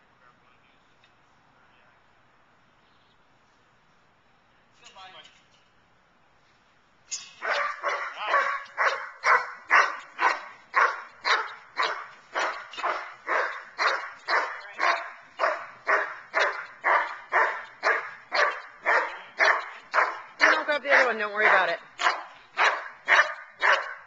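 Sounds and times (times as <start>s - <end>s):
dog barking rapidly: 7.4s - 24.0s.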